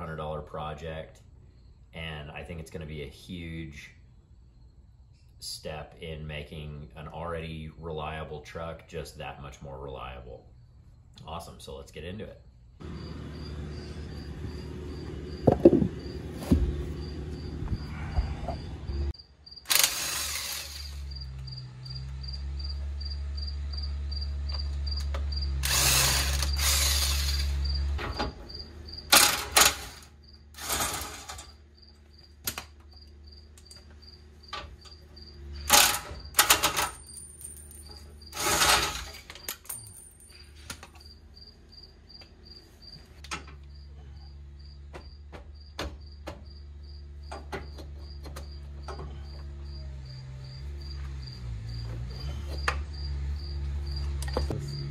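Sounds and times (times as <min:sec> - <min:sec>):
insect chirping: 0:01.4 - 0:02.0, 0:03.9 - 0:05.4, 0:10.5 - 0:11.2, 0:12.4 - 0:25.6, 0:26.2 - 0:29.1, 0:30.0 - 0:30.5, 0:31.4 - 0:36.4, 0:37.0 - 0:38.4, 0:41.0 - 0:54.9
impact wrench bursts: 0:19.6 - 0:21.4, 0:25.4 - 0:27.9, 0:35.6 - 0:36.9.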